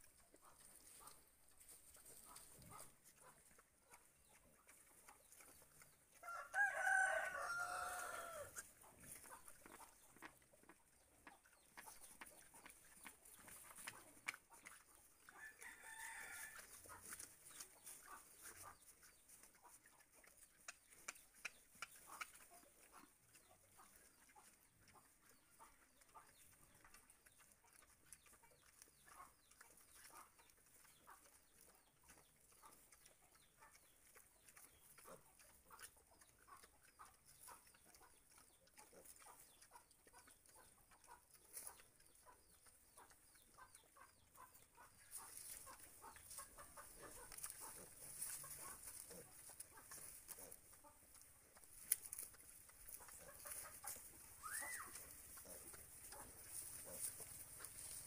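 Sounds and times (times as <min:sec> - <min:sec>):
pigs chewing and rooting: 0:00.0 - 0:58.0
chicken calling: 0:06.2 - 0:08.5, 0:54.4 - 0:55.0.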